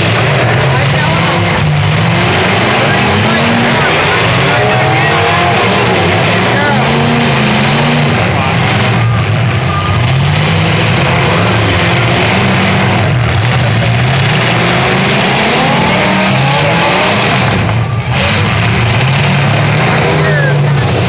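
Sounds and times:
car engines revving: 0.0 - 21.0.

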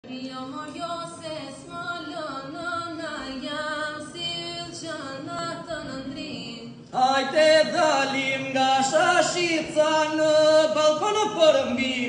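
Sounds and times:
group singing a drone: 0.8 - 10.7
lead voice singing: 4.6 - 12.0.

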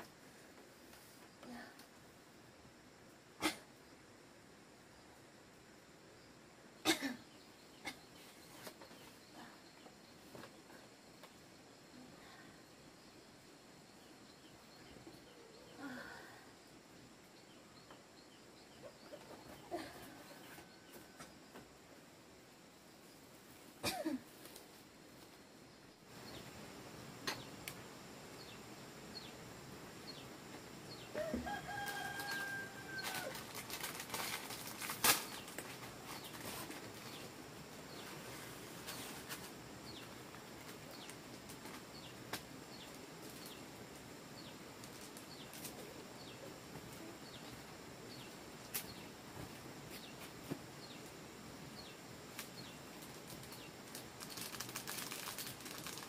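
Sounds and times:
rooster crowing: 31.1 - 33.4.

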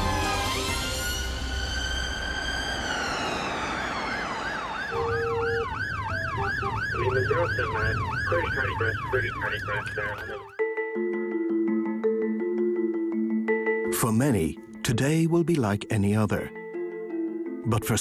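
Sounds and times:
ambulance siren: 0.0 - 11.4.

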